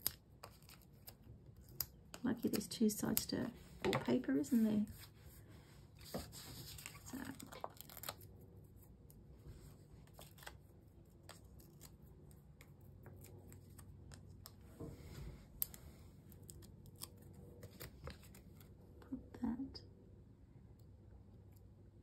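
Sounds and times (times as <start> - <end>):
paper rustling: 5.9 - 8.8, 9.7 - 15.2.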